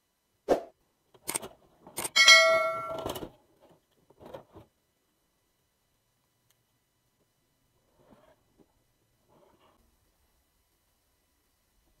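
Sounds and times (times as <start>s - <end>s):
circuit boards knocking together: 1.2s - 3.4s
metallic ding: 2.1s - 3.1s.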